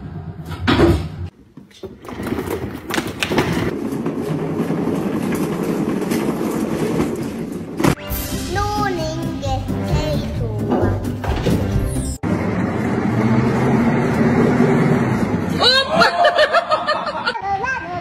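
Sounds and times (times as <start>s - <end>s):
exercise wheel rolling rumble: 1.7s - 7.9s, 12.2s - 15.6s.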